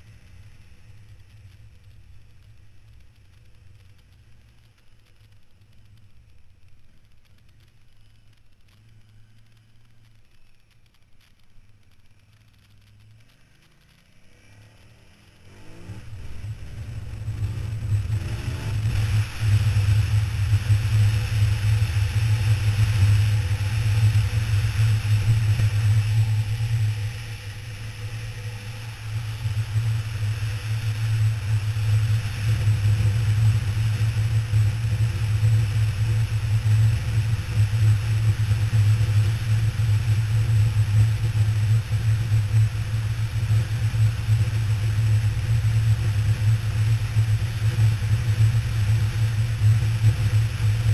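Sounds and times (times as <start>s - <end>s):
motorcycle engine: 12.4s - 50.9s
wind rushing over microphone: 16.0s - 50.9s.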